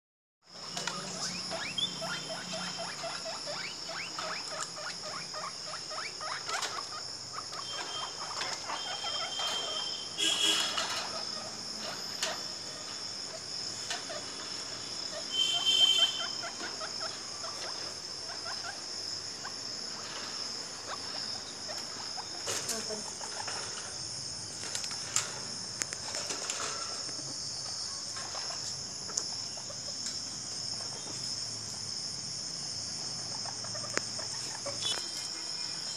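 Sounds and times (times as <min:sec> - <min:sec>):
crickets chirping: 0:00.4 - 0:35.9
guinea pigs squeaking: 0:00.6 - 0:24.0, 0:33.2 - 0:35.4.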